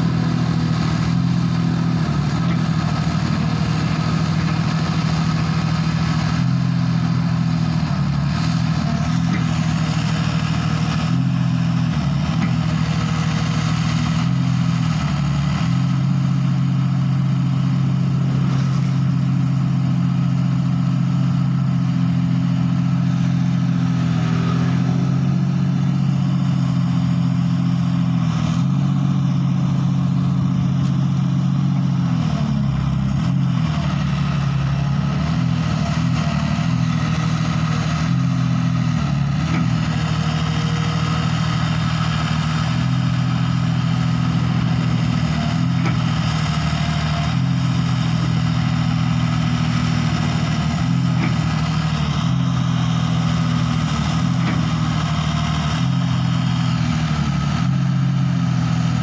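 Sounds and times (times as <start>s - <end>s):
excavator diesel engine running: 0.0s - 59.0s.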